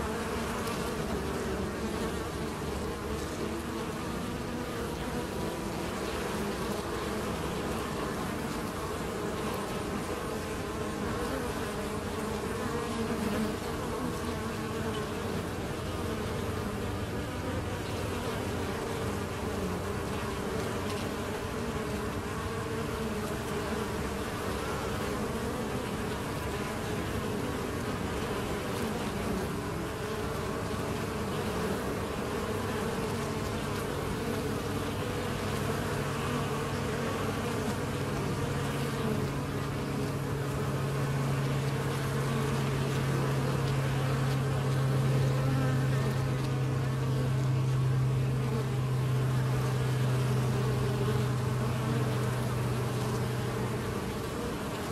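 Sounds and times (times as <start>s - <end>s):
honeybees buzzing: 0.0s - 54.9s.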